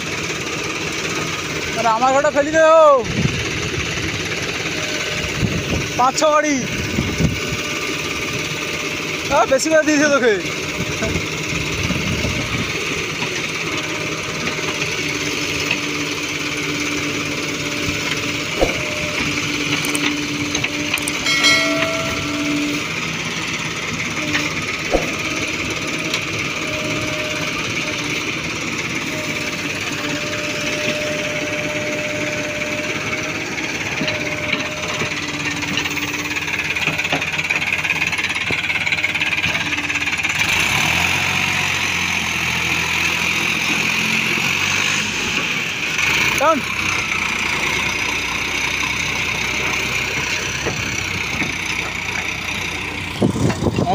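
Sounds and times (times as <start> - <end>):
backhoe loader diesel engine: 0.0 - 53.9
low tractor engine: 0.0 - 53.9
sharp knocks: 18.6 - 19.0, 21.1 - 22.8, 24.9 - 25.5.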